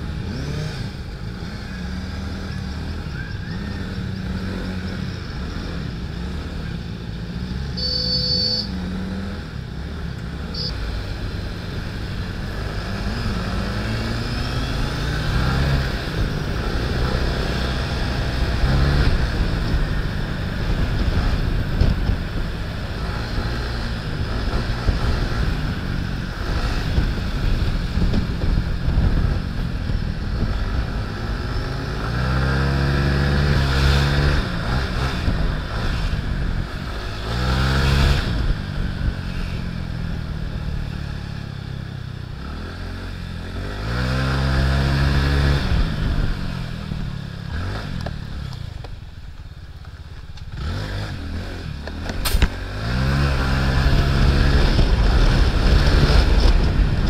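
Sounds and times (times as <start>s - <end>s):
wind and road noise: 0.0s - 57.0s
sharp click: 51.8s - 52.6s.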